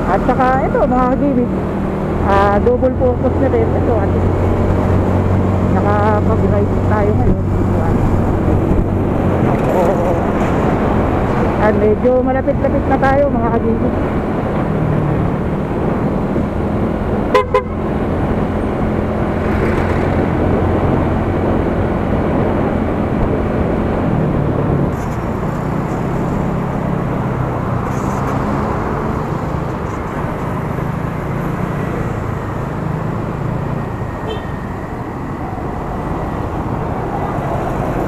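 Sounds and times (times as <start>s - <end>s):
wind and road noise: 0.0s - 38.0s
double horn toot: 17.3s - 17.8s.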